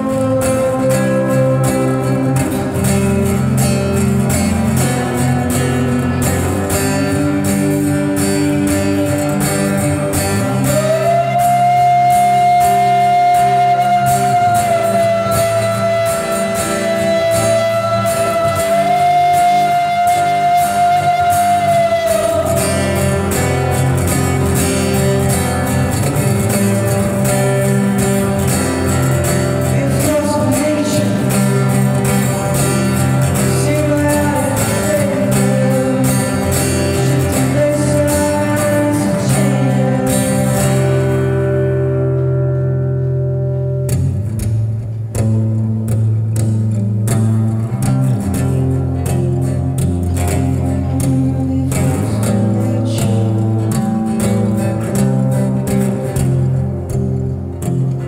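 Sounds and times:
wordless singing voice: 0:00.0 - 0:09.6, 0:10.4 - 0:24.4, 0:28.7 - 0:41.4, 0:50.5 - 0:55.0
strummed acoustic guitar: 0:00.0 - 0:58.0.

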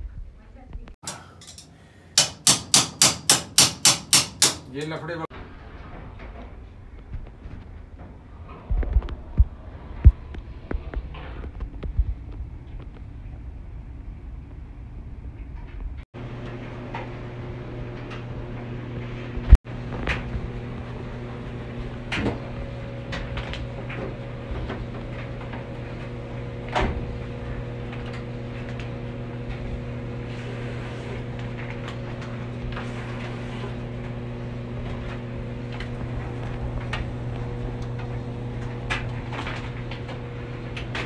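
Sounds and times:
washer and dryer humming: 0:01.0 - 0:06.7, 0:15.3 - 0:41.0.

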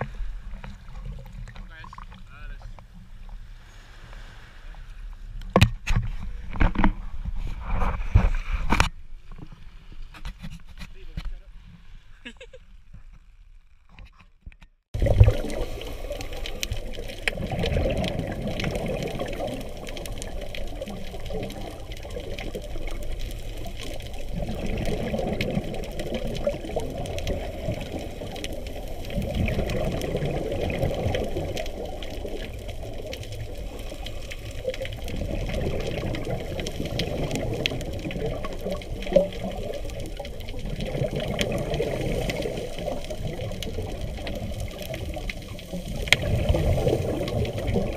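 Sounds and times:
regulator bubbles: 0:00.6 - 0:02.8, 0:15.0 - 0:47.9
faint crackling clicks: 0:12.6 - 0:47.9.

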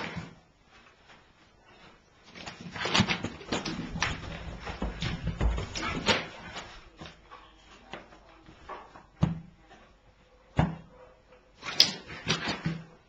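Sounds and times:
thumps and stomps on carpet: 0:02.9 - 0:06.6.

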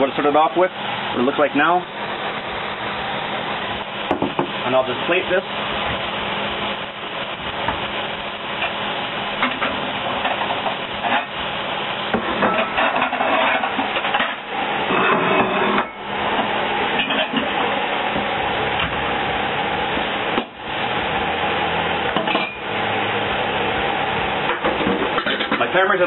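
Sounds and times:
dishes and utensils clinking: 0:12.2 - 0:16.0, 0:17.0 - 0:17.6, 0:24.5 - 0:25.7.

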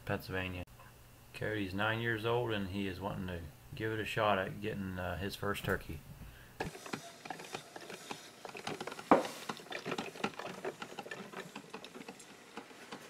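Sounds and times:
coffee maker popping and sputtering: 0:06.6 - 0:13.0.

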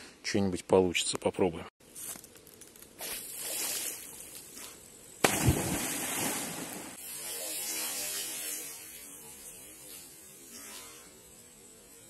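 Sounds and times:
loud splash in water: 0:05.2 - 0:07.0.

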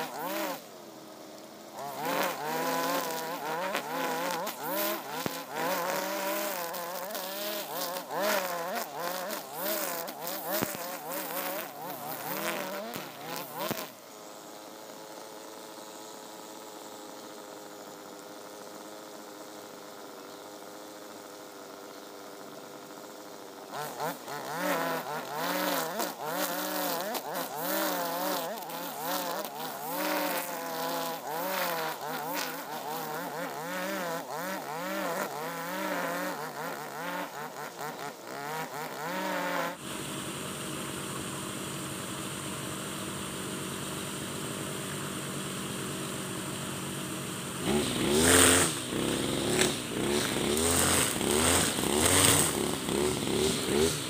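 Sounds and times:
brush cutter revving: 0:00.0 - 0:54.0.

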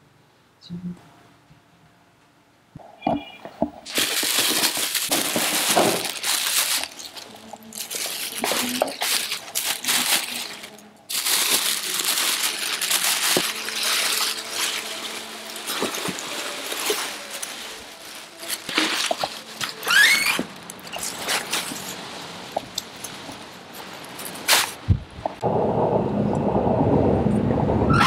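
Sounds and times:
plastic bin liner rustling: 0:03.8 - 0:22.1.

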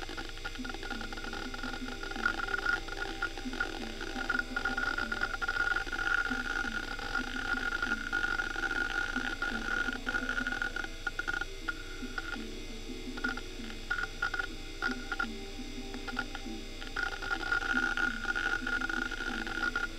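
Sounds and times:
hard drive head clicking: 0:00.0 - 0:19.9
hard drive whine: 0:00.0 - 0:19.9.

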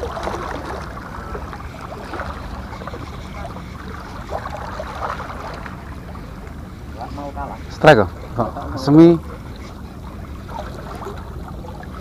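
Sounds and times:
small boat engine rumble: 0:00.0 - 0:12.0
water splashing: 0:00.0 - 0:12.0.

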